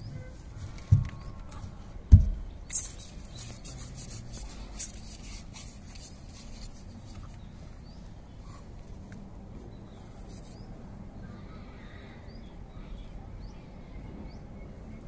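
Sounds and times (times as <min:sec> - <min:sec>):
plastic rubbing and scraping: 0:00.0 - 0:07.5
plastic pipe fitting thump: 0:02.1 - 0:02.4.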